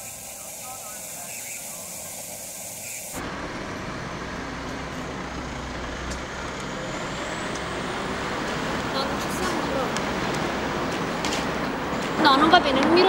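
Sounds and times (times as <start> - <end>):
steady hiss: 0.0 - 3.3
rumble of heavy vehicles: 0.0 - 13.0.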